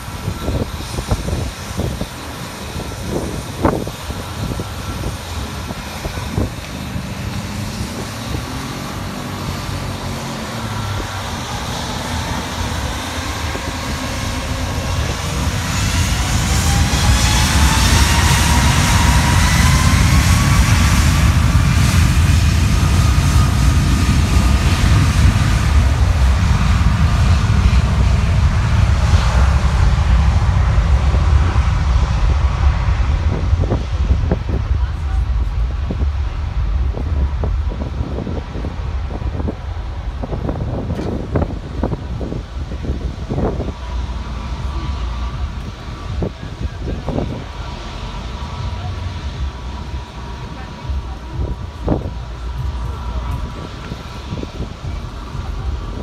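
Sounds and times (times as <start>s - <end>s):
jet blast buffeting microphone: 0.0s - 56.0s
jet engines spooling up: 0.0s - 56.0s.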